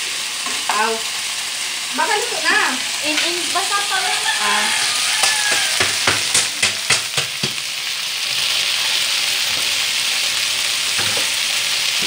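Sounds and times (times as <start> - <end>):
vegetables sizzling in a pan: 0.0 - 12.0
spatula knocking against pan: 5.2 - 7.6.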